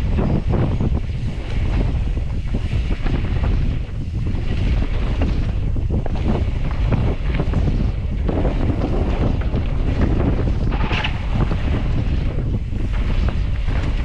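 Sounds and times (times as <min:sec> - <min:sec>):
bike rumbling and rattling: 0:00.0 - 0:14.0
wind buffeting microphone: 0:00.0 - 0:14.0.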